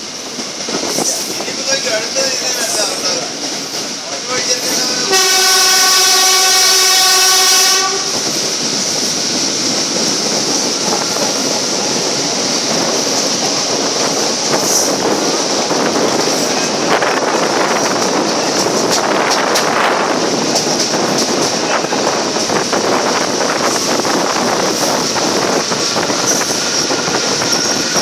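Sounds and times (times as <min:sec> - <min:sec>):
train rumbling on track: 0:00.0 - 0:28.0
train horn blast: 0:05.0 - 0:08.3.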